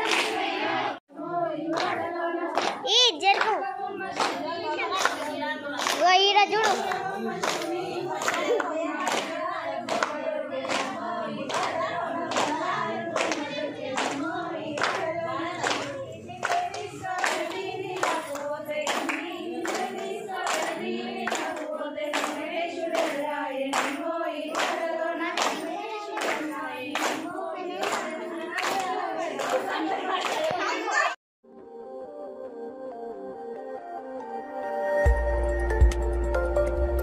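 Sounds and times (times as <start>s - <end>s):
hands clapping steady beat: 0.0s - 0.6s, 1.7s - 30.6s
women singing folk song: 0.0s - 31.1s.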